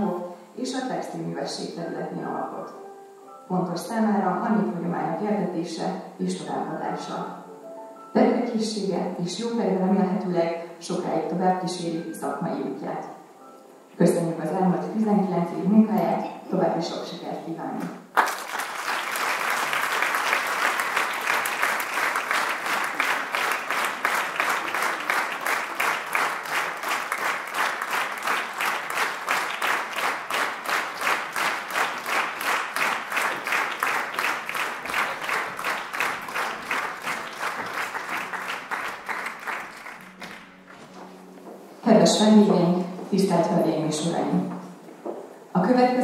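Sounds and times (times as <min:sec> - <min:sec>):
audience applauding: 0:18.1 - 0:40.8.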